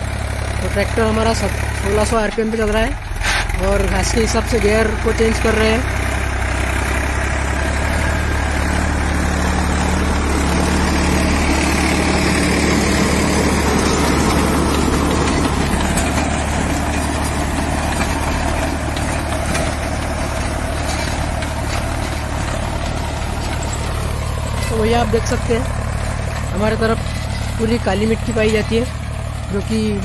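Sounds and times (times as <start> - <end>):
tractor diesel engine under load: 0.0 - 30.0
rotavator churning soil: 6.6 - 30.0.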